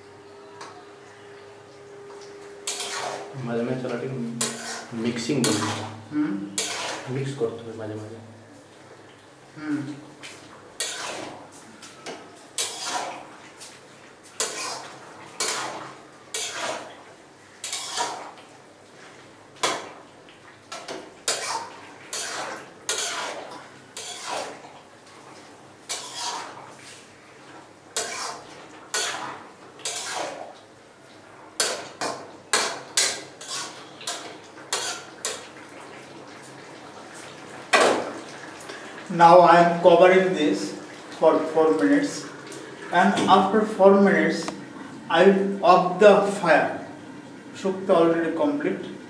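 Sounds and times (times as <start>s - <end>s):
spatula scraping metal wok: 2.6s - 3.4s, 4.4s - 7.2s, 10.8s - 11.4s, 12.6s - 13.3s, 14.4s - 16.9s, 17.6s - 18.4s, 21.3s - 24.6s, 25.9s - 27.0s, 28.0s - 30.4s, 31.6s - 35.4s.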